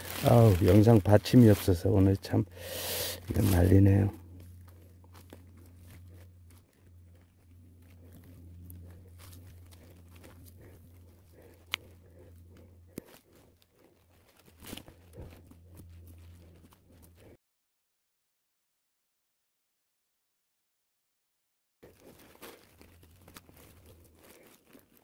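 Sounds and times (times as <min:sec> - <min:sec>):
hand digging soil and leaves: 0:00.0 - 0:17.4, 0:21.8 - 0:25.0
low steady hum: 0:00.0 - 0:17.4.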